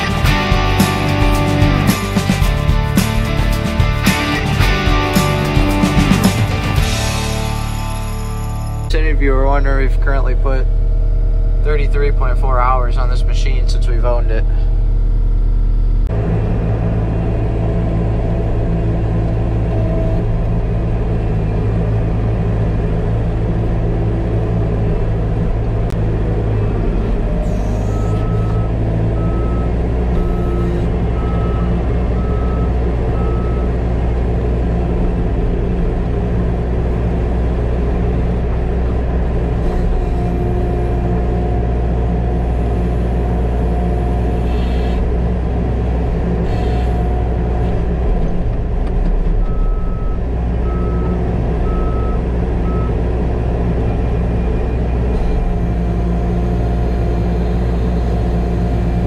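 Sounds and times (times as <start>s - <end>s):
diesel engine running: 0.0s - 59.0s
backup alarm beeping: 27.4s - 33.7s, 49.4s - 53.0s.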